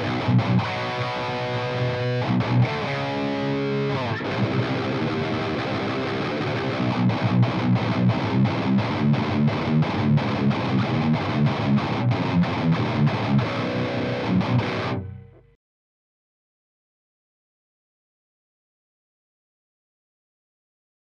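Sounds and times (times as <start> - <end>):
overdriven electric guitar riff: 0.0 - 15.6.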